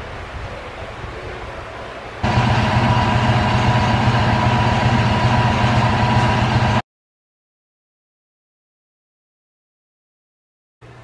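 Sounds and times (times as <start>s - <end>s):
machine humming: 2.2s - 6.8s.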